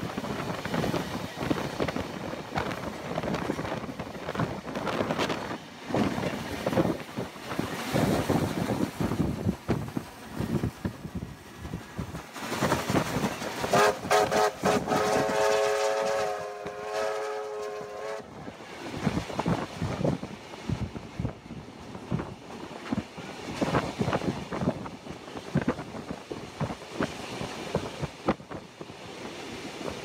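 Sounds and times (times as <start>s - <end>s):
train rumbling on rails: 0.0s - 30.0s
steam locomotive whistle: 13.7s - 18.3s.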